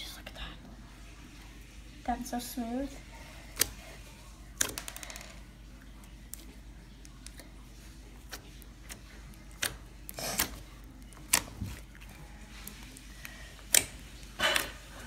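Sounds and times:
slime squelch: 5.7 - 15.0
slime clicking and popping: 8.3 - 12.0, 13.7 - 14.0.

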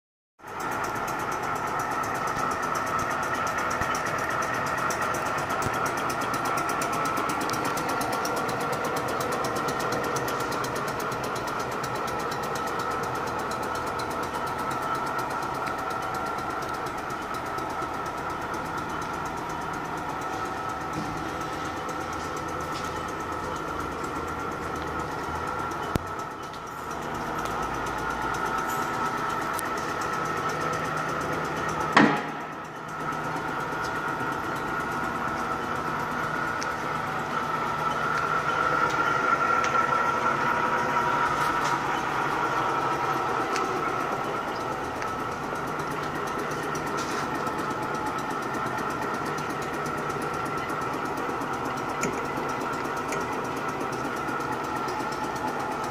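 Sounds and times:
machine running with high tone: 20.0 - 47.2.

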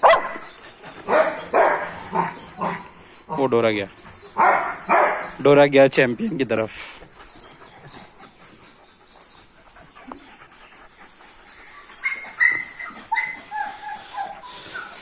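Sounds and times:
dog whining: 11.5 - 15.0.

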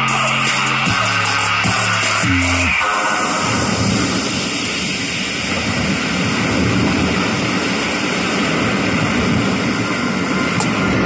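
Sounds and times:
bass-heavy music through speakers: 0.0 - 5.0.

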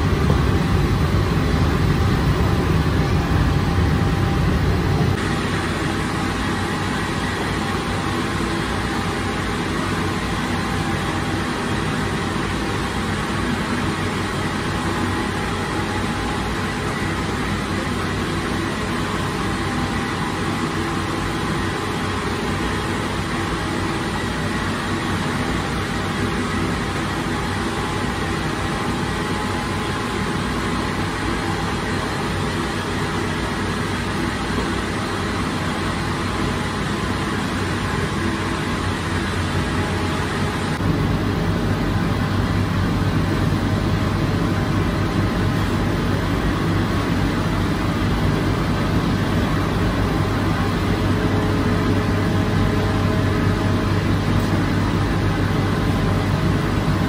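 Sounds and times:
deep rumble: 0.0 - 5.2
oven machine hum: 0.0 - 57.0.

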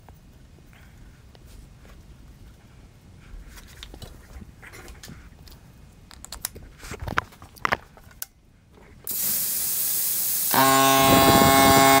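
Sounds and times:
air compressor hissing: 9.1 - 12.0
compressor motor humming drone: 10.5 - 12.0.

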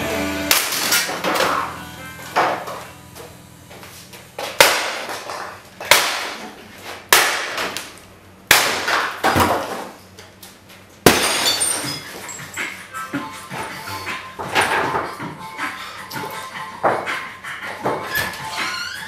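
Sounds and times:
sledgehammer smashing wood: 0.5 - 1.6, 4.5 - 7.9, 8.5 - 9.9, 11.0 - 12.0.

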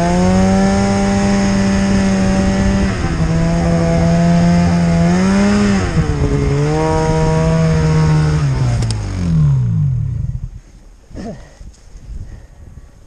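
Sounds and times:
snowmobile engine revving: 0.0 - 10.2.

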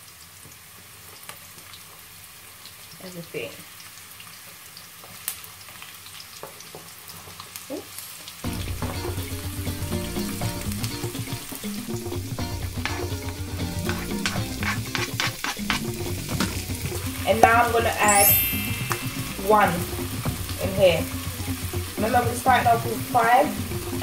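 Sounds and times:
vegetables sizzling in oil: 0.0 - 24.0
background music: 8.4 - 24.0
wooden spoon scraping a pan: 12.6 - 17.2
spoon tapping: 12.6 - 20.5.

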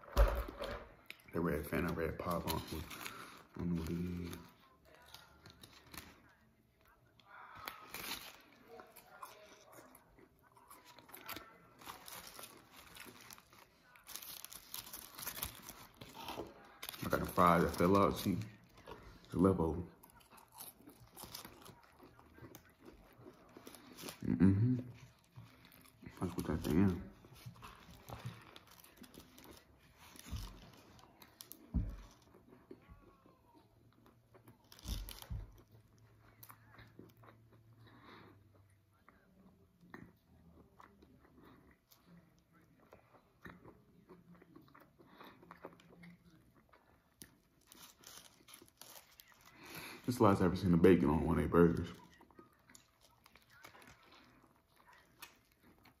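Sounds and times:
food crunching and rustling: 0.0 - 56.0
wet chewing sounds: 1.0 - 50.7, 51.7 - 56.0.

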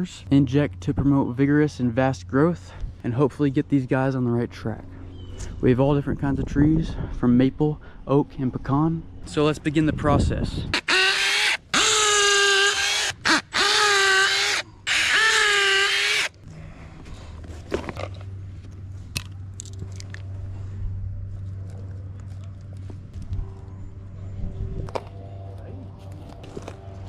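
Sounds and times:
cordless drill whining: 10.8 - 16.3.

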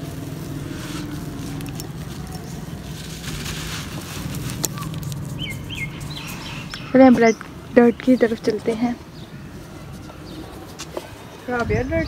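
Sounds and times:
grit trickling: 0.0 - 7.4
dirt clumps crunching: 0.0 - 12.0.

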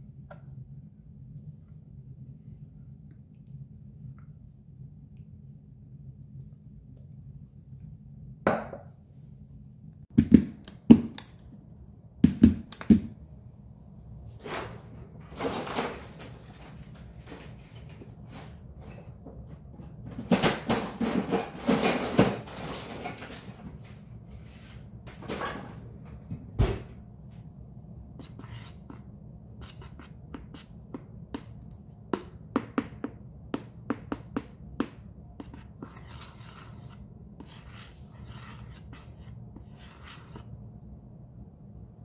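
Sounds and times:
kitchen clattering and knocking: 15.3 - 16.7, 20.0 - 23.9.

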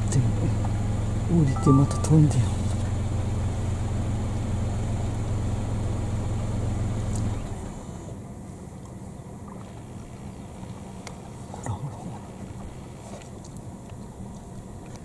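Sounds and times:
car engine idling: 0.0 - 15.0
faint steady background: 1.2 - 2.7.

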